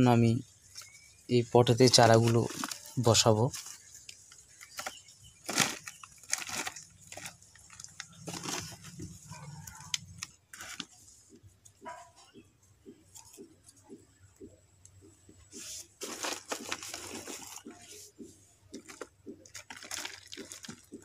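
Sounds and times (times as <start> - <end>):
soil crunching and rustling: 1.7 - 11.0, 18.8 - 21.0.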